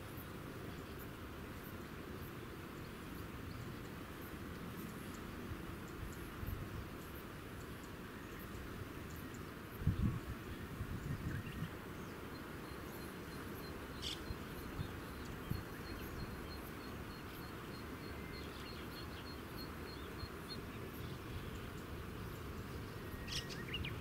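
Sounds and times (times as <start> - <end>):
low outdoor noise: 0.0 - 24.0.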